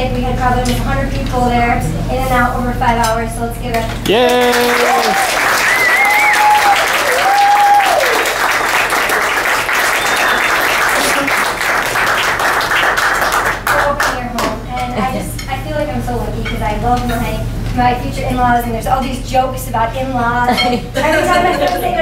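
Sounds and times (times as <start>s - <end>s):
people clapping: 3.9s - 14.6s, 21.4s - 22.0s
people cheering yay: 4.0s - 11.7s.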